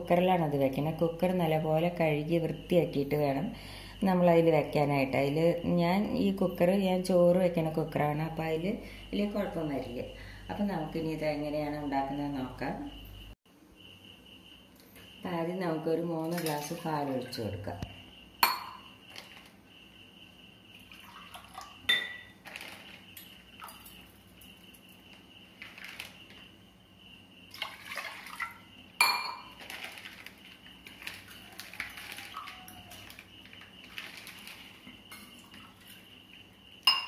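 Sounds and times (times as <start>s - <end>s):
glass clinking against pot: 18.4s - 18.9s, 21.9s - 22.3s, 29.0s - 29.6s
milk pouring into metal pot: 20.8s - 24.5s, 27.5s - 28.6s, 29.5s - 36.0s.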